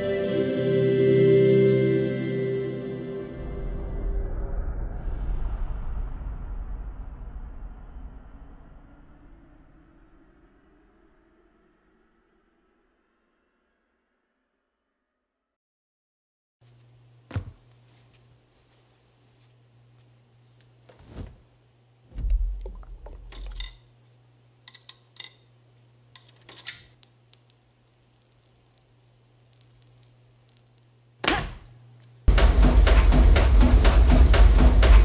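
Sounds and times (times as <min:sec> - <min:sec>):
coins clinking into coin slide: 0:26.2 - 0:31.0.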